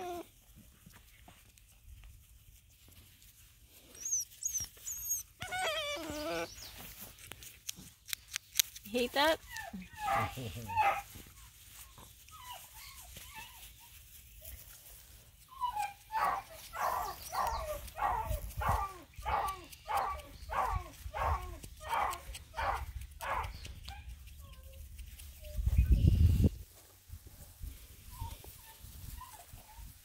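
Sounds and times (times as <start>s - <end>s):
puppy barking: 10.0s - 11.1s, 16.1s - 24.1s.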